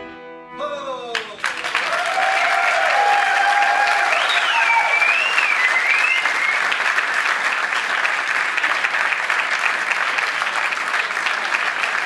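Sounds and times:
audience applauding: 1.1 - 12.0
gliding whistles: 4.1 - 6.9.

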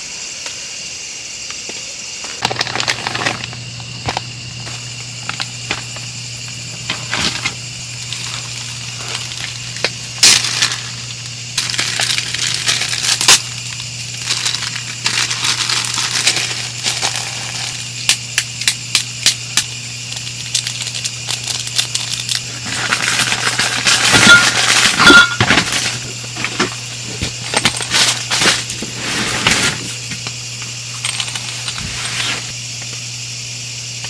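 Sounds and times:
steady low hum: 0.0 - 34.0
plastic bag crinkling: 2.3 - 3.6, 8.0 - 17.8.

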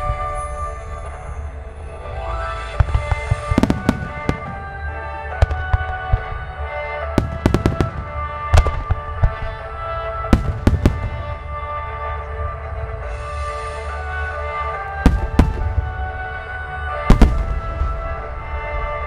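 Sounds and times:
music with long held tones: 0.0 - 19.0
fireworks bangs: 2.7 - 11.9, 15.0 - 19.0.

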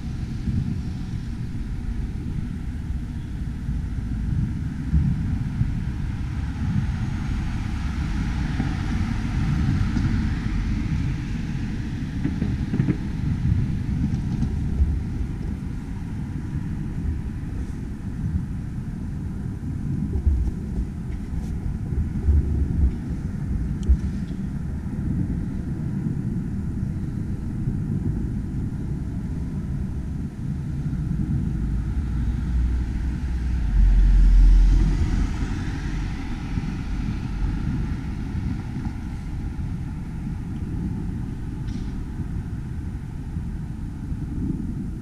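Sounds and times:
low rumble: 0.0 - 45.0.

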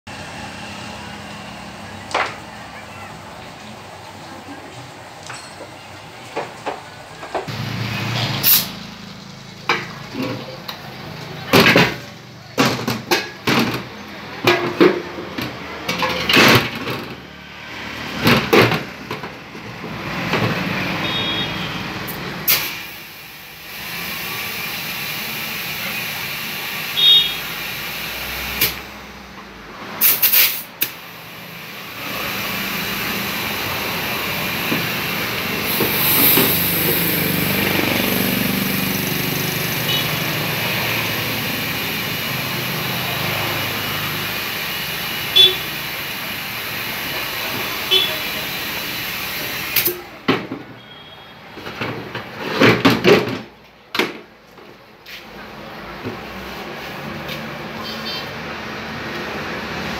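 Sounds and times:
compressed air hissing: 8.2 - 8.9, 22.4 - 29.1, 30.0 - 50.1.

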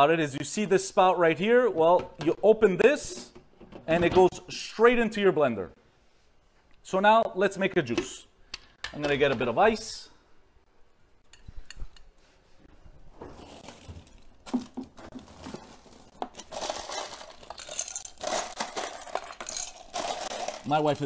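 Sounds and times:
packages rustling: 13.1 - 21.0
frozen items clinking and knocking: 13.3 - 21.0.

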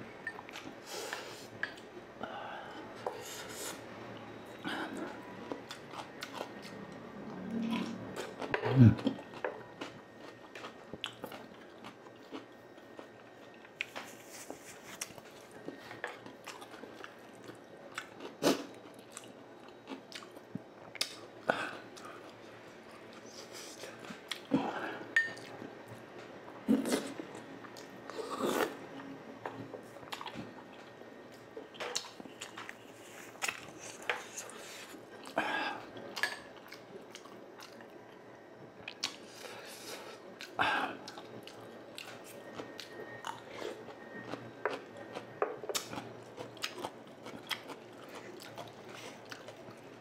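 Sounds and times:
chewing and biting fried food: 38.9 - 50.0.

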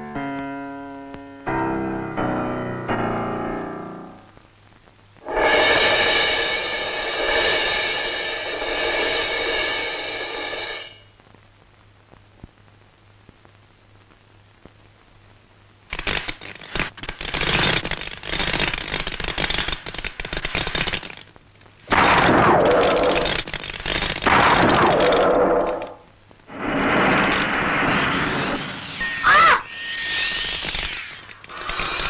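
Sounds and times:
cartoon electric crackling: 15.9 - 32.0.

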